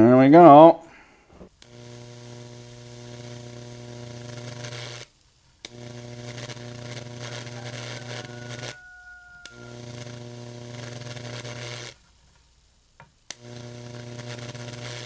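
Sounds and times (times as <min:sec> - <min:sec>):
electrical buzz: 0:01.4 - 0:15.0
sizzling hiss in water: 0:06.4 - 0:09.8.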